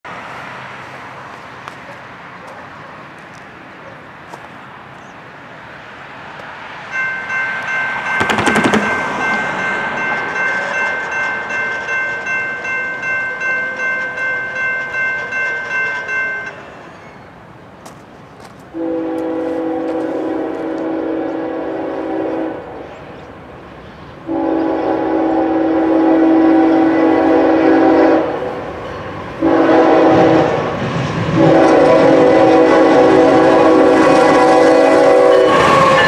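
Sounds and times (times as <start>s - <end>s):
car passing with tyre noise: 0.1s - 10.1s
crossing warning bell ringing: 6.9s - 17.3s, 24.3s - 30.8s, 31.4s - 36.0s.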